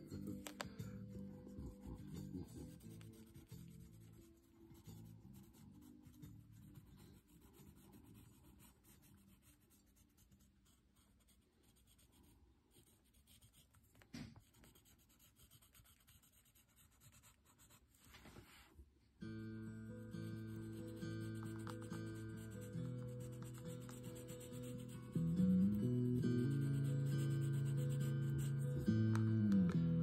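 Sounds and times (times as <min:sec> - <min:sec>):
background music: 0:00.0 - 0:09.6, 0:19.2 - 0:30.0
oil pastel scratching on board: 0:01.7 - 0:18.7, 0:20.0 - 0:29.2.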